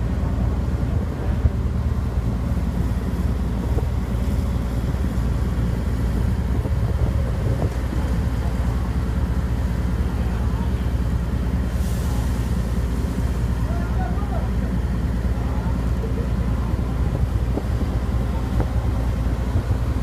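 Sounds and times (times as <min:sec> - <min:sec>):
low engine rumble: 0:00.0 - 0:20.0
wind on microphone: 0:03.5 - 0:08.9, 0:16.7 - 0:20.0.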